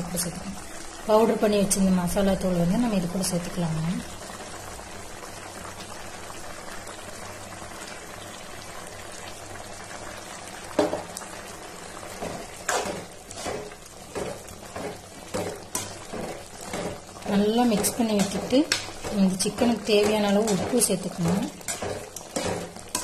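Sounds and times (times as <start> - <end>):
curry bubbling in a pan: 0.0 - 23.0
metal ladle scraping a pan: 12.2 - 23.0.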